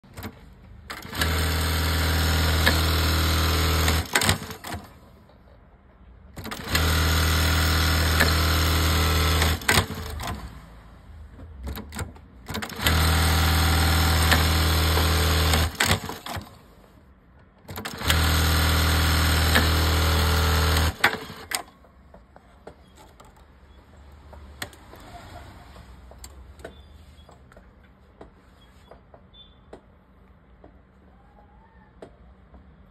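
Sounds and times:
sewing machine running: 0:00.9 - 0:05.0, 0:06.4 - 0:10.6, 0:12.5 - 0:16.7, 0:17.7 - 0:21.7.

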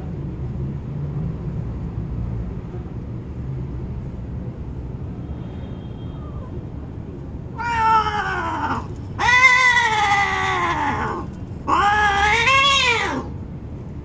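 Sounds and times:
cats yowling: 0:06.2 - 0:06.6, 0:07.5 - 0:13.4.

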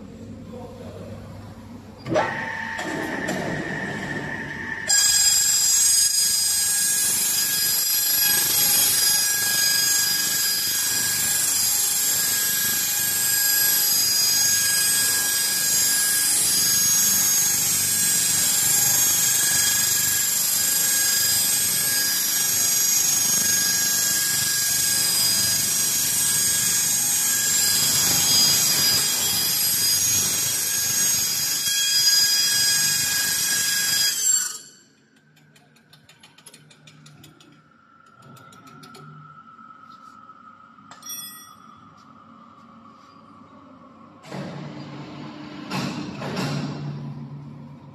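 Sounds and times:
cutting disc grinding sheet metal: 0:02.1 - 0:34.9.

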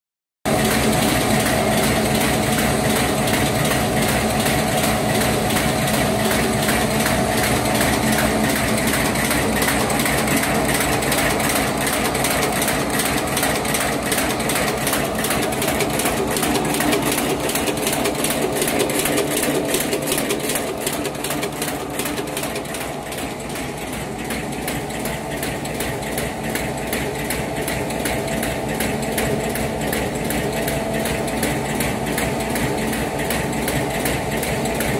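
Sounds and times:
paper bag machine running: 0:00.5 - 0:34.9.

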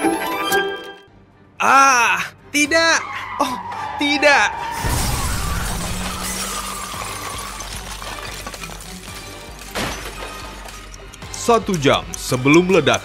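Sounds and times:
background music: 0:00.0 - 0:13.0
shattering crumbling debris: 0:04.7 - 0:11.4
cartoon bomb explosion: 0:04.8 - 0:06.8.

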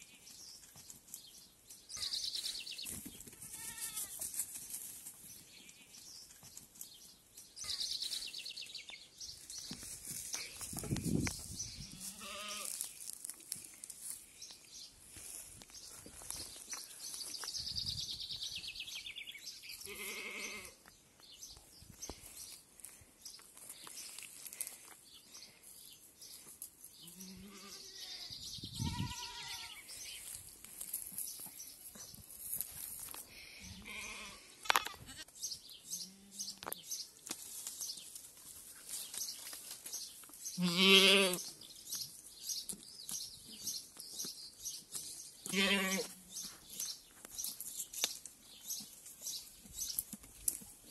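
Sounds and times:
goat kids bleating: 0:03.3 - 0:04.2, 0:11.9 - 0:12.9, 0:19.8 - 0:20.8, 0:27.0 - 0:30.0, 0:33.7 - 0:35.3, 0:40.6 - 0:41.4, 0:45.5 - 0:46.2.

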